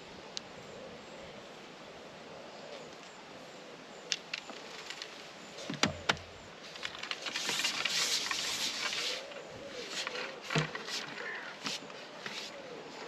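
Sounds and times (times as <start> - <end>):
fishing pole sliding and rustling: 6.6 - 12.8.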